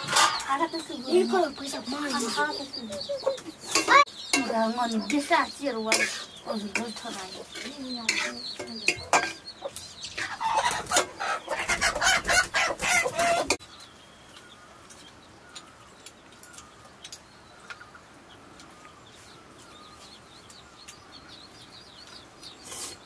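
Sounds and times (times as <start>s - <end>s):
metal spatula scraping wok: 0.0s - 0.5s, 5.9s - 9.5s
chickens clucking: 0.0s - 23.0s
faint chirps: 13.2s - 23.0s.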